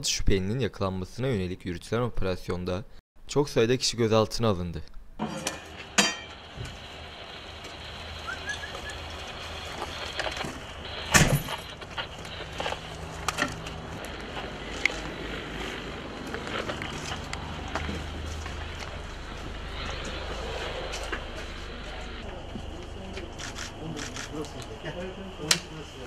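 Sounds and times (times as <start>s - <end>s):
vehicle engine idling: 6.4s - 26.0s.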